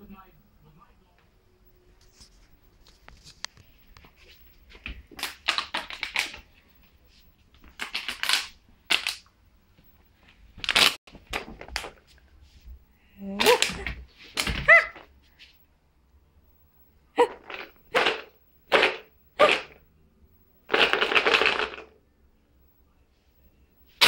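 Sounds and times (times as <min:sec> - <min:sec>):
plastic bottle crinkling: 0:04.7 - 0:06.5, 0:07.6 - 0:09.2, 0:10.6 - 0:12.1.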